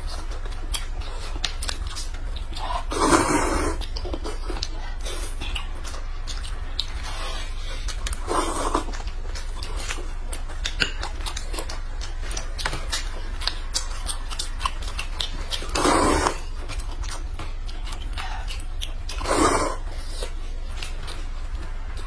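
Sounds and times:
chewing and lip-smacking: 0:00.0 - 0:22.0
slurping noodles: 0:02.8 - 0:03.8, 0:08.2 - 0:08.9, 0:15.7 - 0:16.5, 0:19.2 - 0:20.2.

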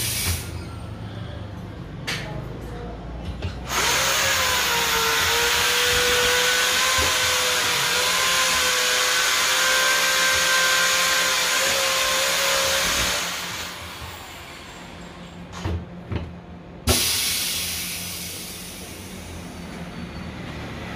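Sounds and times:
compressed air hissing: 0:00.0 - 0:00.6, 0:16.9 - 0:19.6.

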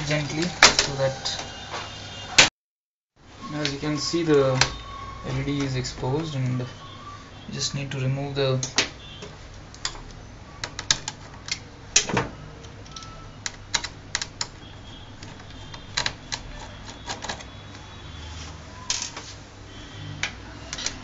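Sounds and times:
metal and plastic parts knocking: 0:08.6 - 0:17.5.

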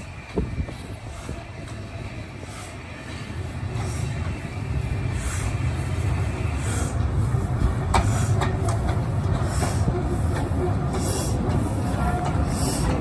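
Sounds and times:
steam hiss: 0:00.0 - 0:13.0
steam train rumbling: 0:00.0 - 0:13.0
wheels clicking over rail joints: 0:06.7 - 0:13.0.

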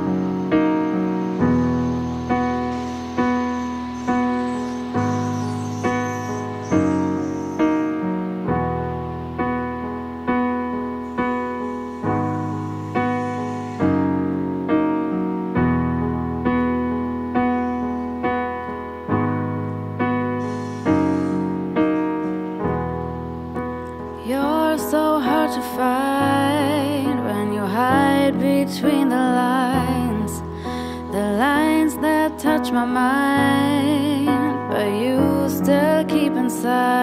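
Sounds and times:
electric keyboard piano chords: 0:00.0 - 0:37.0
woman singing: 0:24.2 - 0:37.0.

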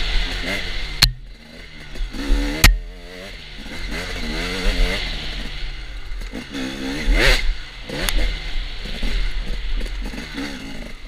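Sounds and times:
dirt bike engine revving: 0:00.0 - 0:11.0
sharp knock: 0:01.0 - 0:01.3.

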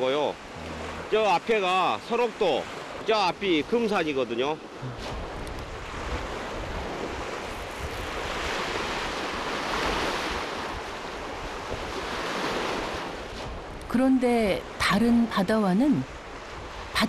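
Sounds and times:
waves breaking on rocky shore: 0:00.0 - 0:14.8
wind gusting on microphone: 0:04.6 - 0:14.8.

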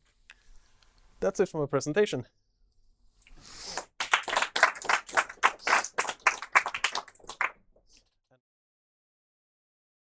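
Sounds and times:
audience clapping: 0:03.8 - 0:07.6.

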